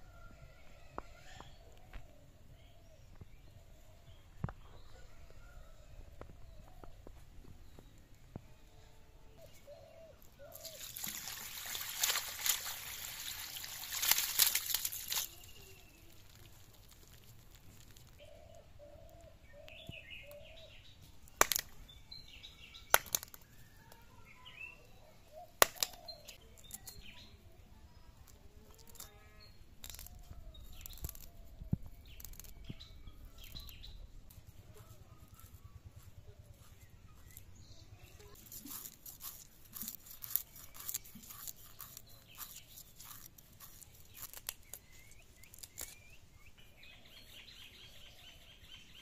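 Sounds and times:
birds chirping: 0:00.8 - 0:49.0
rustling and splashing: 0:10.5 - 0:18.2, 0:38.1 - 0:46.0.

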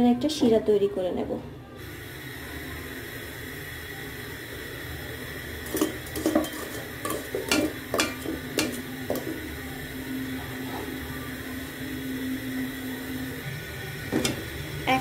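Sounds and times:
metal spoon scraping a pot: 0:05.6 - 0:09.4.

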